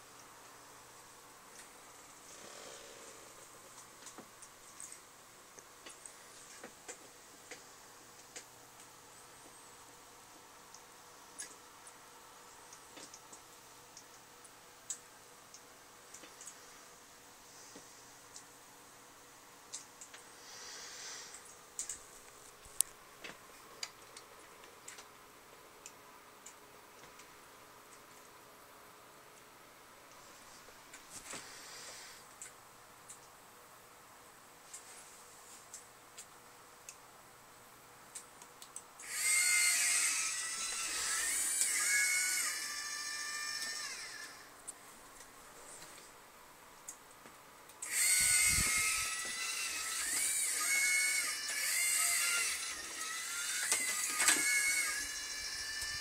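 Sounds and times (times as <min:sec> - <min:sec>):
faint steady hum: 0:00.0 - 0:56.0
robot arm motors whining: 0:39.0 - 0:44.5, 0:47.8 - 0:56.0.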